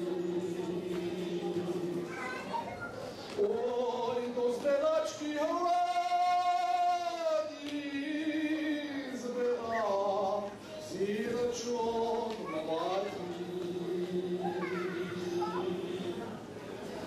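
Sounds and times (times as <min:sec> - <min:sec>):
man singing solo: 0:03.4 - 0:16.4.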